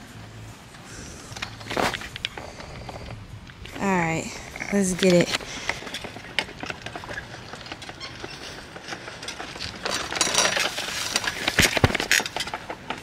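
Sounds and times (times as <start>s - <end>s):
camera jostling noise: 4.9s - 13.0s.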